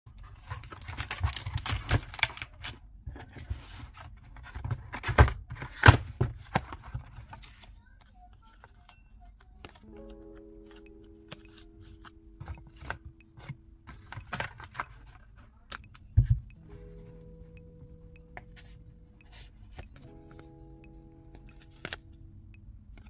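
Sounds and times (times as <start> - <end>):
soft background music: 0.1 - 23.0
paper rustling: 0.2 - 15.8.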